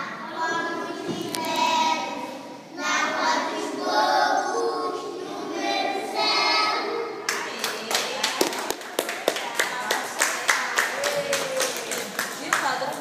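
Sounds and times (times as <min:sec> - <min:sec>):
children singing together: 0:00.0 - 0:07.4.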